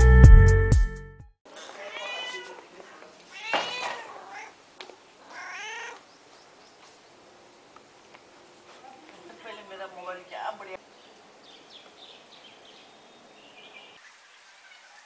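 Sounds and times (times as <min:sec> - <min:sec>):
cat meowing: 0:01.6 - 0:04.6, 0:05.2 - 0:06.0.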